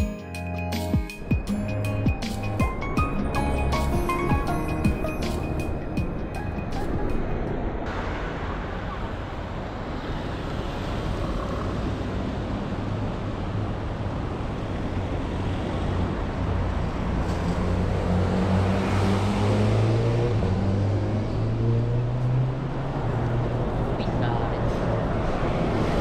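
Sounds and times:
road traffic: 0.0 - 26.0
vehicle accelerating past: 15.8 - 24.0.

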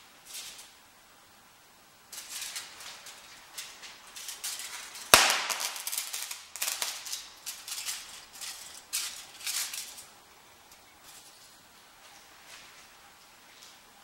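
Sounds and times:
loud sharp electrical crack: 0.0 - 0.8, 2.0 - 10.2
short crackles: 2.1 - 10.1
foil rustling: 2.1 - 10.2.

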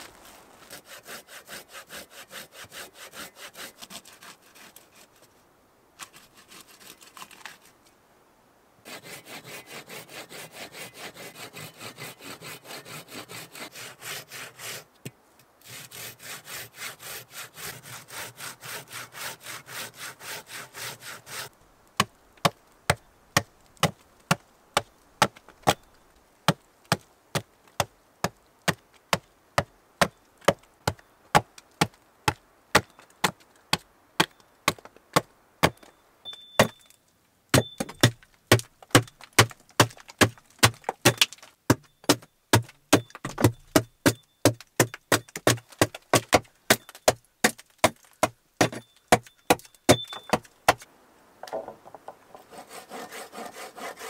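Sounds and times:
saw cutting wood: 0.7 - 5.1, 8.9 - 14.9, 15.6 - 21.5, 52.4 - 54.0
chopping blows on wood: 37.6 - 50.8.

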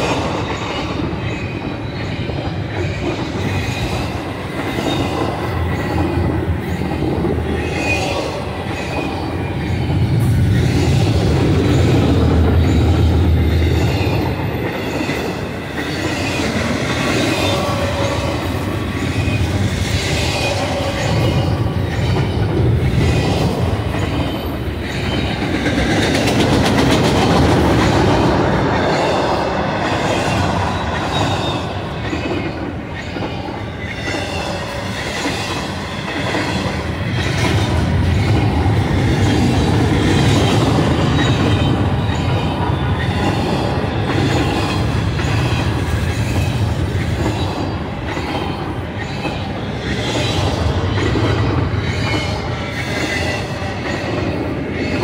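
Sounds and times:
freight train wheels rumbling on rails: 0.0 - 55.0.

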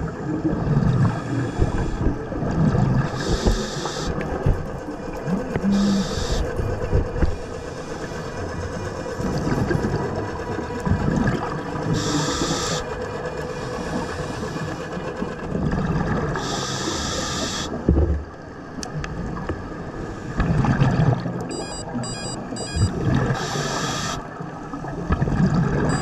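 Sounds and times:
exhaled bubbles gurgling: 0.0 - 7.4, 8.8 - 12.9, 13.8 - 18.3, 20.3 - 26.0
regulator inhale hiss: 3.2 - 4.2, 5.7 - 6.5, 11.9 - 12.9, 16.4 - 17.7, 23.4 - 24.2.

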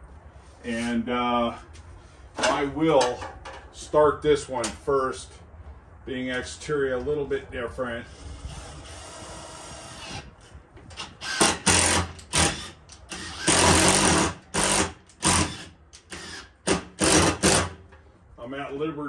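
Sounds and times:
power drill driving a screw: 8.4 - 10.3, 11.0 - 17.8.

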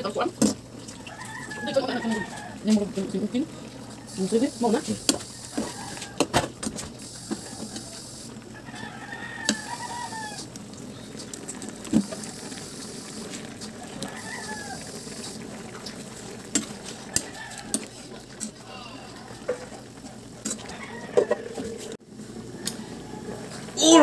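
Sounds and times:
rooster crowing: 1.0 - 2.7, 5.3 - 6.4, 7.1 - 10.5, 13.8 - 15.0, 17.1 - 18.0, 20.5 - 23.7
steady hiss: 9.4 - 17.0.

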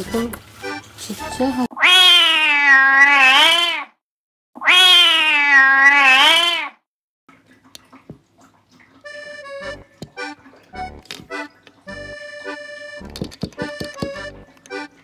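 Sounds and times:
cat yowling: 1.7 - 4.0, 4.6 - 6.8.

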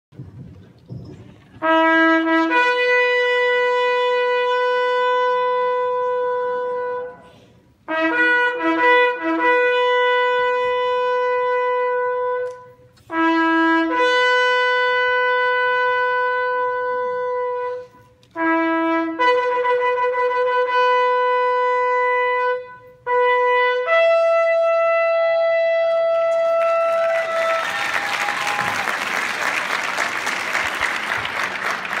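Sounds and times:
shofar blasts: 1.6 - 29.0
audience applause: 26.3 - 32.0.

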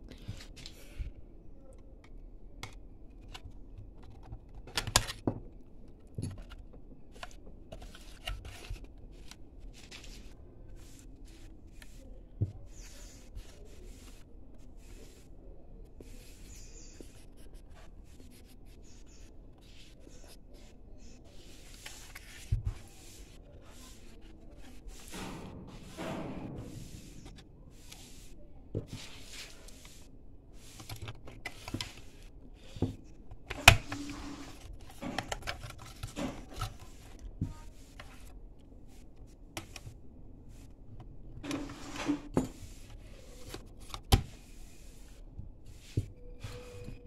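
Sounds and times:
plastic clicks and scrapes: 1.8 - 13.5, 28.7 - 38.4
knife scraping plastic and metal: 33.4 - 37.2.

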